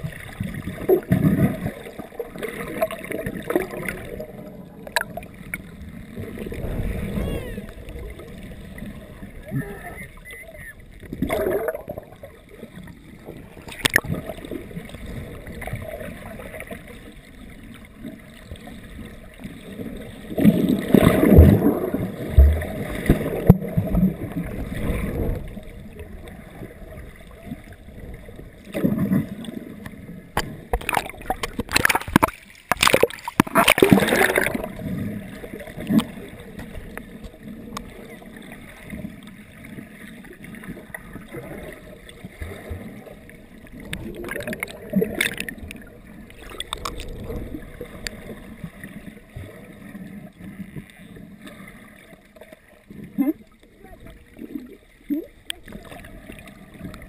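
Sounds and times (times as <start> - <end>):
splashing and bubbling: 0.0 - 57.0
muffled underwater noise: 2.4 - 29.5, 33.4 - 57.0.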